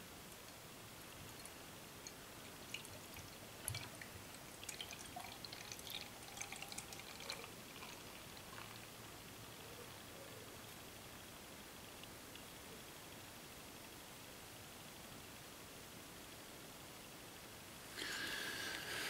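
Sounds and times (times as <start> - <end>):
beer trickling into glass: 1.4 - 8.8, 17.9 - 19.0
foam fizzing: 17.9 - 19.0.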